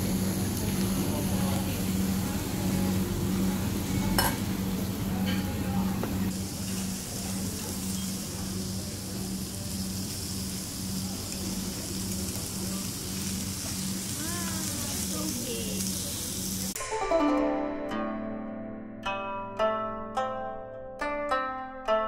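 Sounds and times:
beef sizzling on grill: 0.0s - 16.8s.

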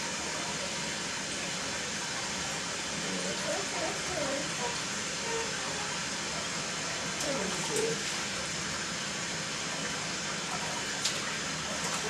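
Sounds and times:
sink tap running: 3.3s - 9.2s
water splashing: 9.7s - 12.0s.

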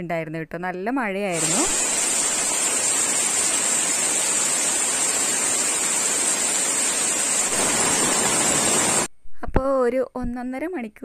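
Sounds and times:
heavy rain on foliage: 1.4s - 9.1s
rainwater pouring off plastic sheet: 1.4s - 9.1s.

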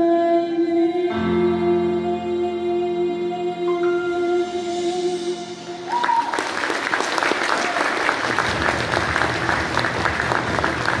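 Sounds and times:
audience applauding: 5.9s - 11.0s.

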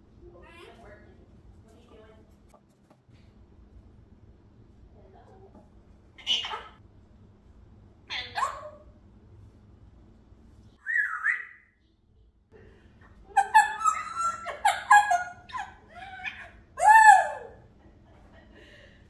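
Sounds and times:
parrot whistling and chattering: 10.8s - 11.8s.

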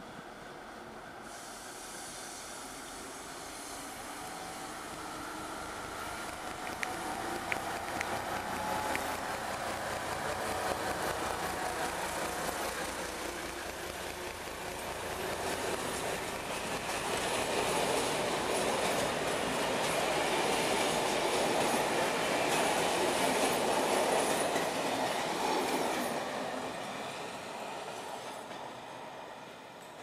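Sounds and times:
train coaches rolling on rails: 0.0s - 30.0s
wheels clicking over rail joints: 5.9s - 26.1s.

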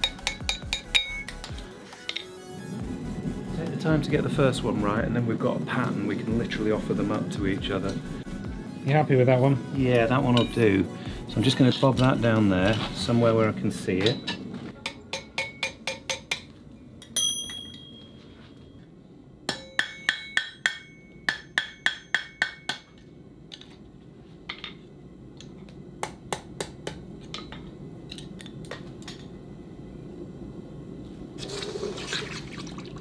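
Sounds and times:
hammer ringing on anvil: 0.0s - 1.5s, 10.3s - 10.6s, 14.0s - 18.8s, 19.5s - 23.1s.

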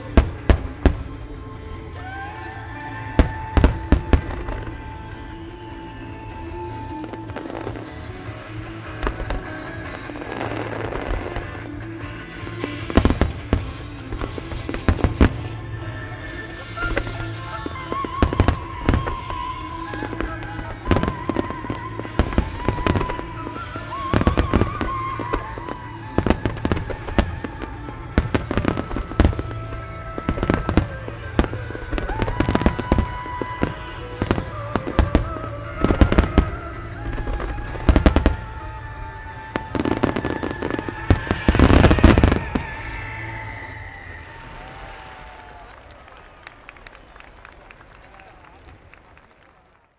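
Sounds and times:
music playing: 0.0s - 49.7s
firework booms: 39.6s - 43.3s.

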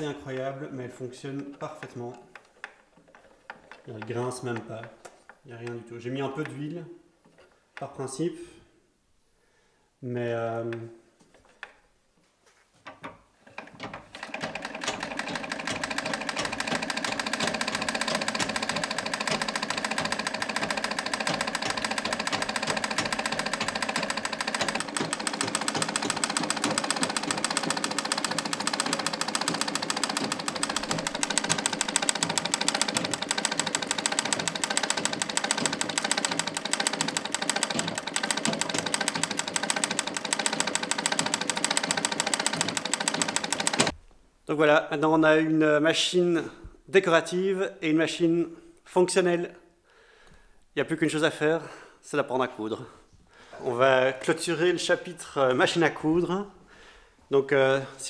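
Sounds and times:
sewing machine clattering: 1.3s - 5.8s, 13.0s - 44.0s.

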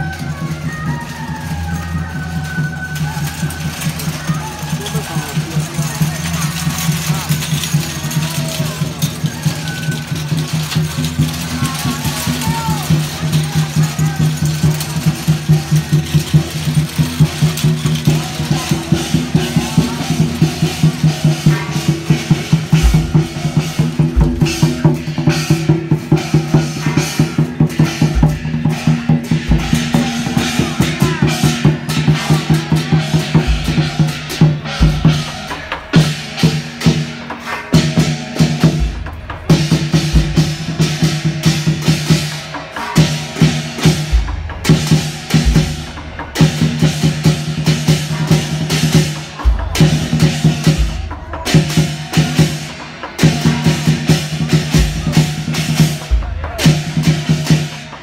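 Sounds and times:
fast drum strokes: 0.0s - 58.0s
deep bass drum beat: 15.0s - 42.3s, 43.0s - 52.4s, 53.2s - 57.6s.

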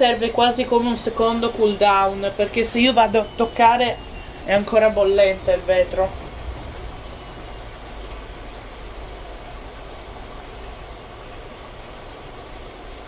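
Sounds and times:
low rumble: 0.4s - 11.0s.

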